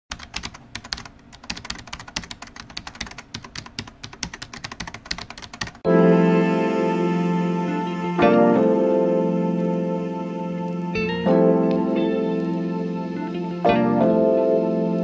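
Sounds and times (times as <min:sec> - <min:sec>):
keyboard typing clicks: 0:00.1 - 0:05.8
sustained music chord: 0:05.8 - 0:15.0.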